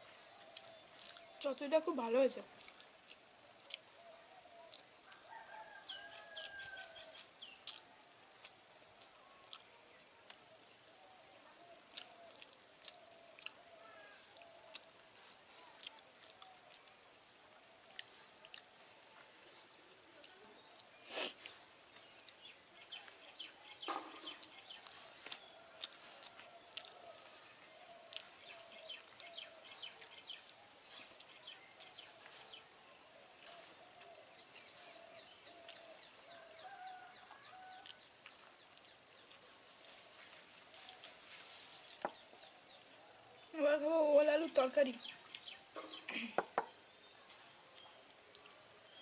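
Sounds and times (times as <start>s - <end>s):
bird calls and chirps: 0.0s - 7.8s, 19.0s - 49.0s
soft chewing clicks: 0.5s - 1.6s, 2.5s - 10.7s, 11.6s - 43.6s, 45.0s - 46.0s, 47.5s - 48.6s.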